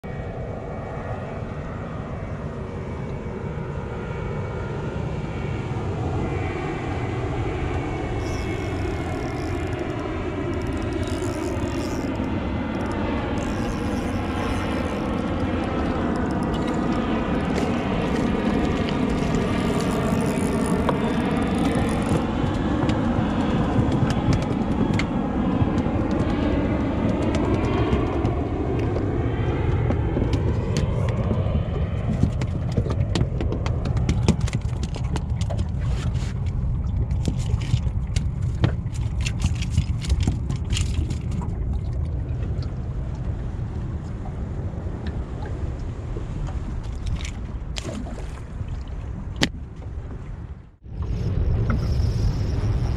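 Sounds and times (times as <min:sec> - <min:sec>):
jet aircraft passing overhead: 0:00.0 - 0:39.1, 0:50.0 - 0:52.9.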